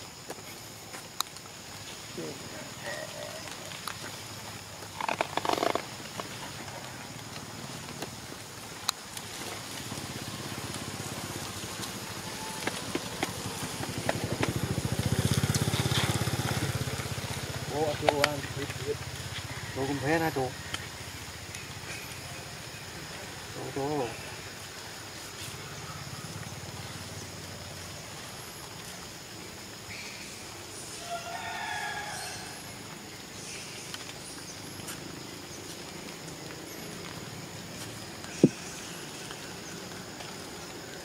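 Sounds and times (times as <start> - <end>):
high insect drone: 0.0 - 41.0
small engine puttering: 12.7 - 19.1.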